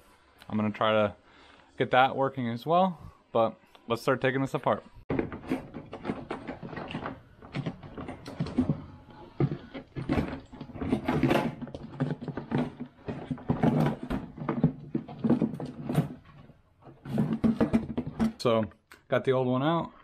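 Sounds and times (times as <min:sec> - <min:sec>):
hard plastic knocking and scraping: 0:05.1 - 0:18.5.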